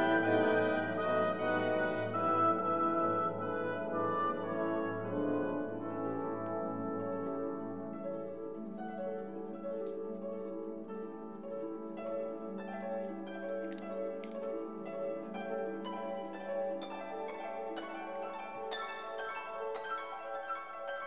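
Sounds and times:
instrumental music: 0.0s - 21.0s.

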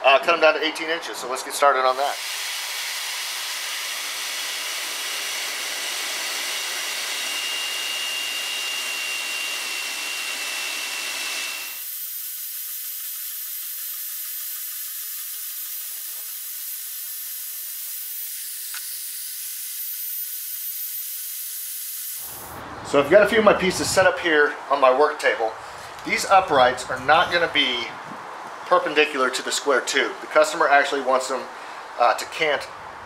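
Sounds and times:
band saw cutting steel tube: 2.0s - 22.6s.

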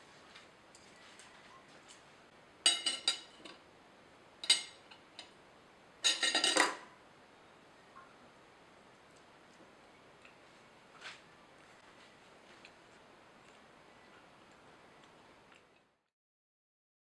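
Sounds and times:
cutlery clinking on plate: 2.7s - 3.6s, 4.4s - 5.3s, 6.0s - 6.9s.

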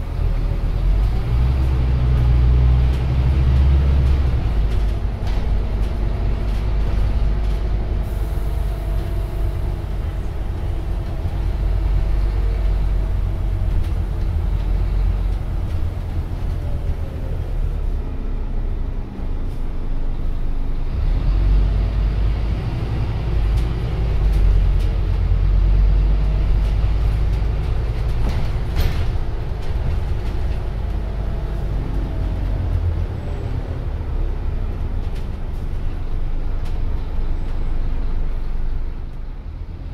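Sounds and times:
bus engine droning: 0.0s - 39.9s.

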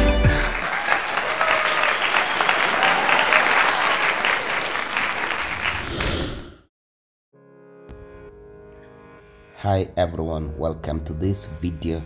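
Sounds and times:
crowd applauding: 0.0s - 5.8s.

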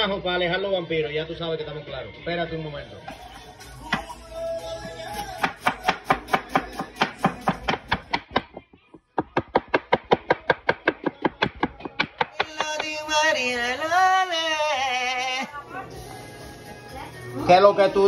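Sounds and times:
music: 0.0s - 8.9s, 10.2s - 18.0s
knife chopping on wooden board: 5.4s - 12.9s.

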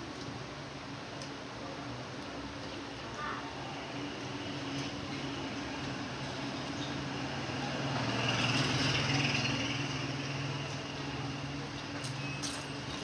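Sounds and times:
vehicle engine passing by: 6.3s - 11.4s.

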